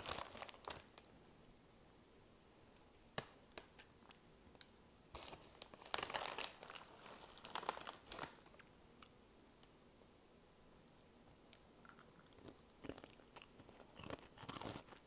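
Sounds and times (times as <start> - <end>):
foil snack bag crinkling: 0.0 - 1.1, 5.2 - 8.6.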